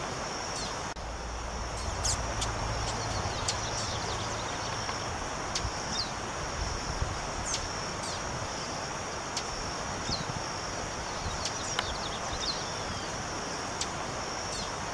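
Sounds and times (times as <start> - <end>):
high insect drone: 0.0 - 14.9.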